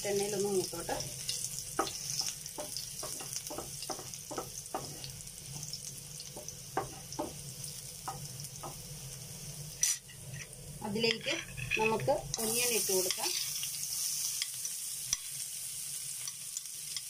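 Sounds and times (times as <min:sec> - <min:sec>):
garlic sizzling in oil: 0:00.0 - 0:17.0
wooden spatula scraping pan: 0:11.1 - 0:12.2.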